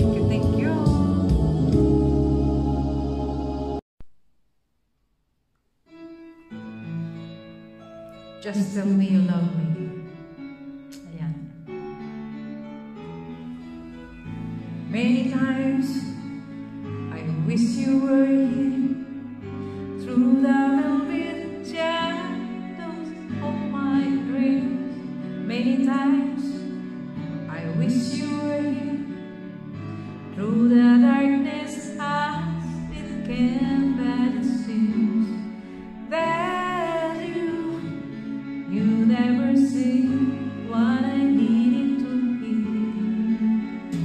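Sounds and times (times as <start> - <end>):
woman singing into microphone: 0.0 - 1.9, 14.9 - 16.3, 17.1 - 19.2, 20.0 - 26.6, 27.5 - 29.2, 30.3 - 44.0
recorded backing music: 0.0 - 3.8, 5.9 - 44.0.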